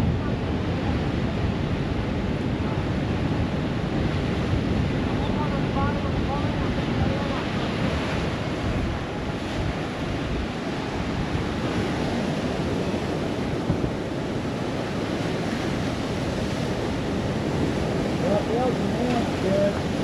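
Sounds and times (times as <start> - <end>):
ocean surf washing: 0.0 - 20.0
wind rumbling on microphone: 0.0 - 20.0.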